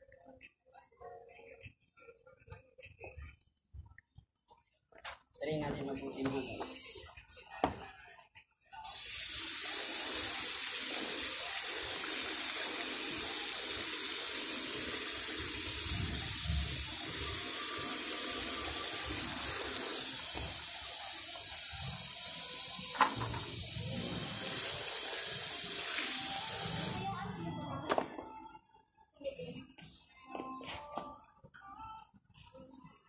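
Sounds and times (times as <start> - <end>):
hose water splashing on concrete: 8.8 - 27.0.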